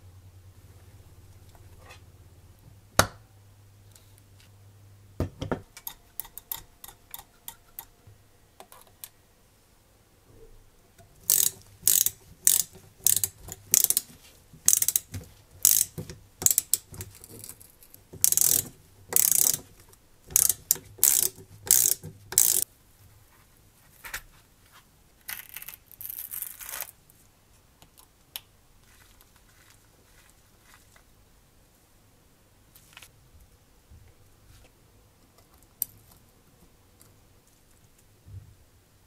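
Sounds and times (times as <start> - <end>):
ratchet wrench clicking: 11.2 - 14.1, 14.7 - 17.5, 18.2 - 19.7, 20.3 - 22.6.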